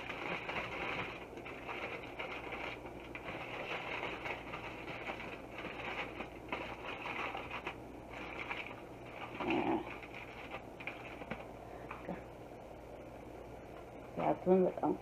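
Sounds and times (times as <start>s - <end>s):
aluminium foil crinkling: 0.0s - 11.5s.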